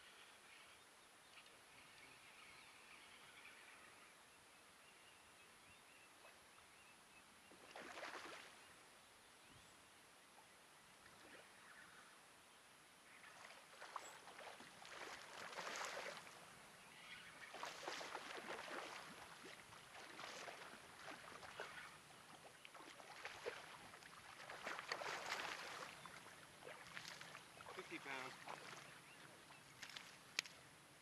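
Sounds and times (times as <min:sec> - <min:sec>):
fish splashing in water: 0:07.6 - 0:08.5, 0:13.4 - 0:16.4, 0:17.5 - 0:28.9.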